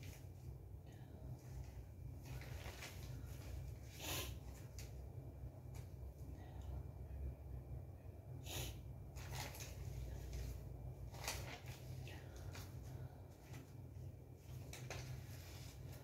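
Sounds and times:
low steady hum: 0:00.0 - 0:16.0
person sniffing sharply: 0:08.4 - 0:08.8.

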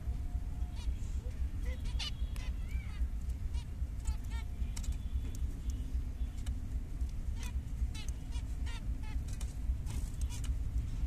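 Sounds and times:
steady low rumble: 0:00.0 - 0:11.0
finches honking calls: 0:00.6 - 0:06.4, 0:07.3 - 0:09.3.

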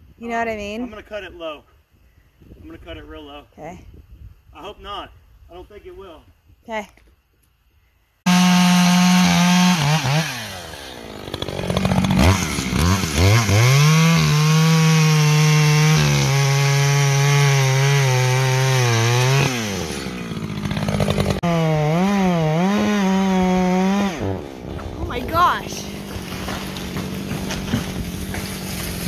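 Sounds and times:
chainsaw cutting tree trunk: 0:08.3 - 0:29.0.

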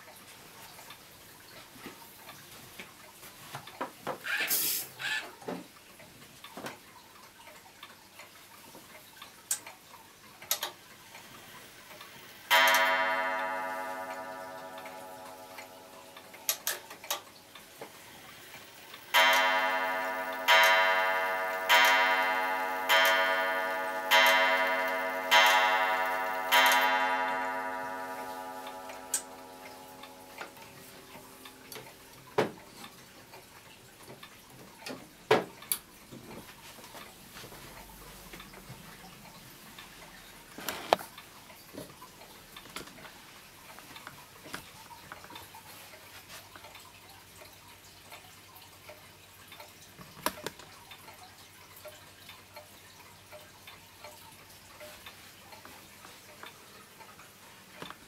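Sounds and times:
clock movement clicks: 0:11.9 - 0:33.5
wall clock gong strikes: 0:12.5 - 0:17.0, 0:19.0 - 0:32.3.

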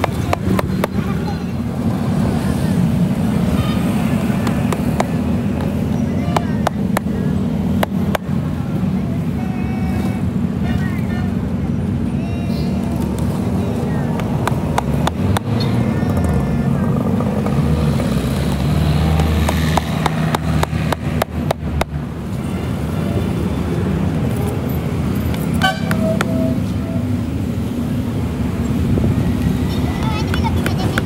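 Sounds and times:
hammer tapping nails: 0:00.0 - 0:01.0, 0:04.4 - 0:05.7, 0:14.2 - 0:15.5, 0:19.2 - 0:22.0
low rumble of engines: 0:00.0 - 0:31.0.

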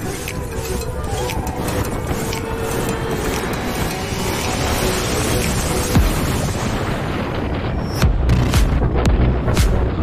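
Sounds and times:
wind rush: 0:00.0 - 0:10.0.

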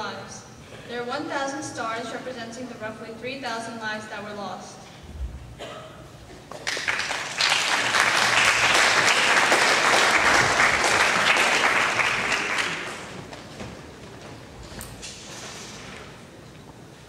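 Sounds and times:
audience applauding: 0:06.5 - 0:13.4.

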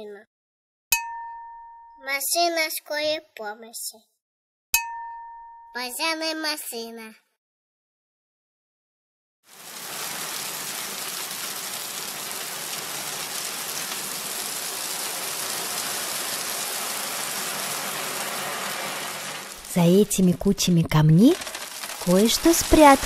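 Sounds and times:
gravel pouring: 0:09.5 - 0:23.0.

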